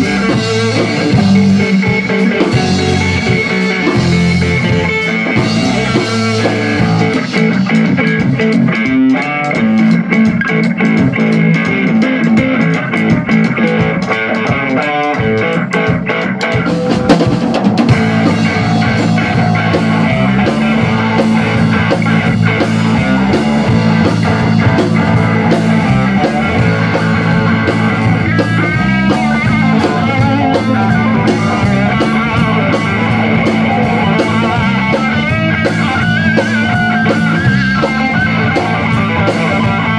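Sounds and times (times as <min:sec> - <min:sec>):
drum kit: 0:00.0 - 0:39.9
electric guitar: 0:00.0 - 0:39.9
sustained low notes: 0:17.9 - 0:36.2.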